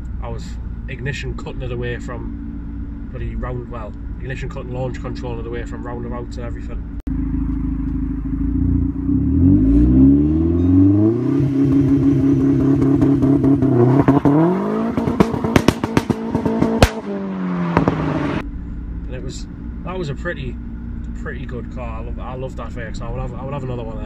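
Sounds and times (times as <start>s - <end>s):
car engine revving: 0.0s - 24.0s
exhaust bangs and crackles: 10.6s - 24.0s.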